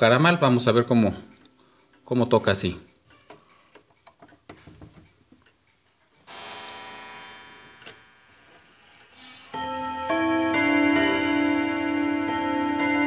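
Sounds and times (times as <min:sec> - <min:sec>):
chime rod ringing: 0:09.5 - 0:13.0.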